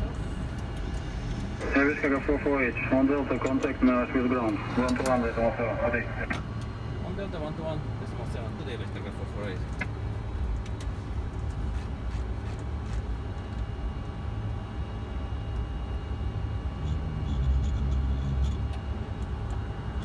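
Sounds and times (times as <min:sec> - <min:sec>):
faint steady tones: 0:00.0 - 0:09.5
aircraft rumble: 0:00.0 - 0:16.8.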